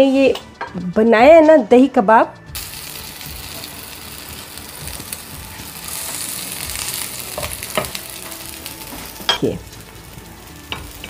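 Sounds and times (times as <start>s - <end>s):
food sizzling in oil: 2.5s - 11.0s.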